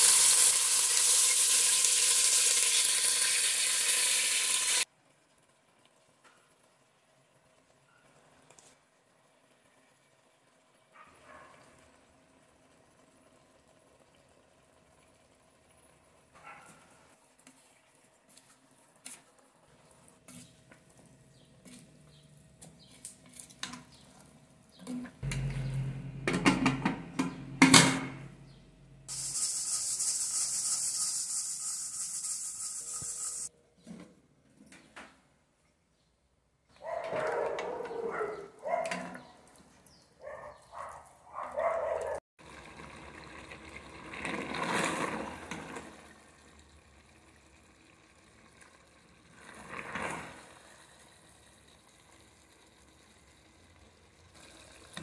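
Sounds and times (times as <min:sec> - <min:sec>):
steam hissing from valve: 0:00.0 - 0:04.9, 0:29.1 - 0:33.5
meat sizzling and simmering: 0:00.0 - 0:16.4, 0:29.1 - 0:33.5, 0:42.4 - 0:55.0
pot lid clanking: 0:25.2 - 0:28.3.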